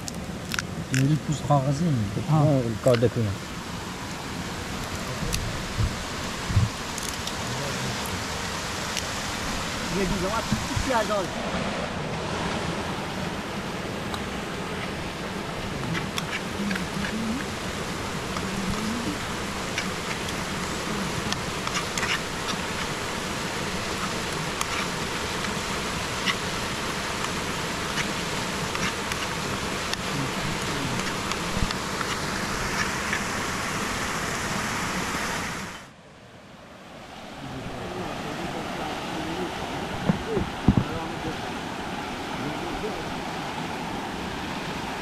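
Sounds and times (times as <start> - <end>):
fly buzzing: 12.6 - 35.8.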